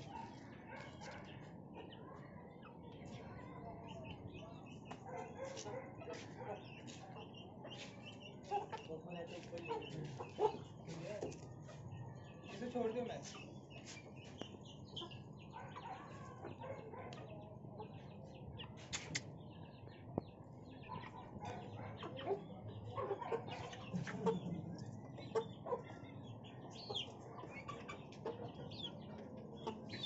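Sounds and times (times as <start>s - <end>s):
chicks peeping: 0.0s - 30.0s
hen clucking: 5.1s - 11.4s, 20.8s - 26.1s, 26.7s - 30.0s.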